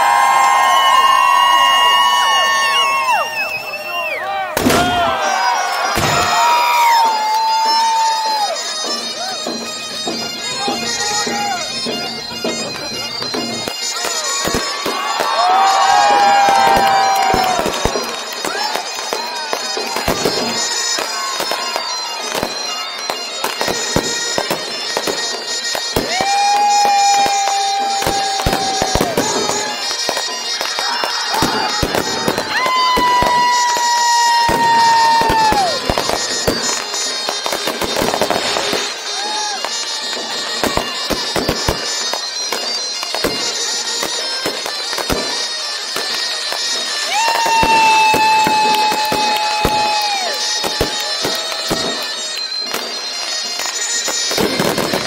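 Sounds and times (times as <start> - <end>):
long steady whistle: 0.0 - 55.0
whistling firework shells: 0.1 - 55.0
high-pitched hissing whistle: 1.4 - 4.4
fireworks bangs and pops: 4.6 - 55.0.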